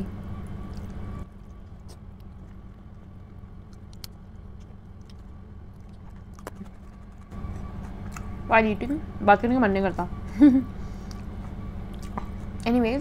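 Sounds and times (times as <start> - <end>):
low background hum: 0.0 - 13.0
faint chewing: 0.4 - 9.0, 10.9 - 12.8
small clicks of fingers picking food: 3.7 - 7.0.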